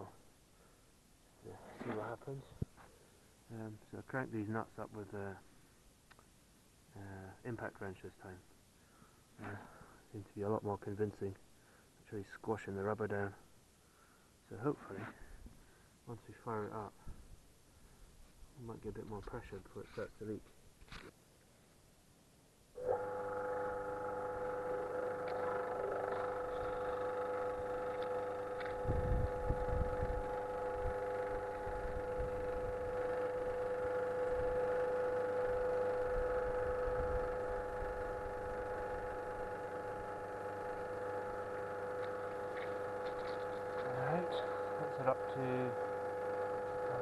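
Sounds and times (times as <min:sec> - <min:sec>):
pump humming: 0:22.8 - 0:47.0.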